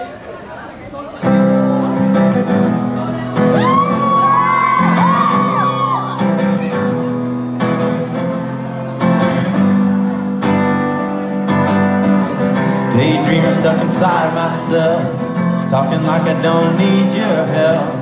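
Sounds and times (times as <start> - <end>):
acoustic guitar strumming: 1.2 - 18.0
audience whooping and screaming: 3.4 - 6.4.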